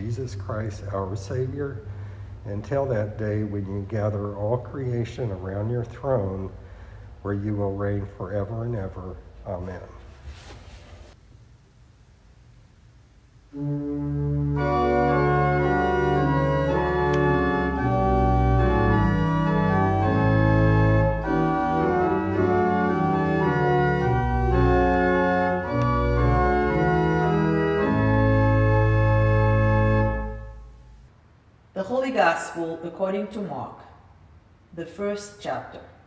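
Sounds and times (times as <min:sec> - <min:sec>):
pipe organ playing chords: 0:00.0 - 0:09.9, 0:13.5 - 0:31.0.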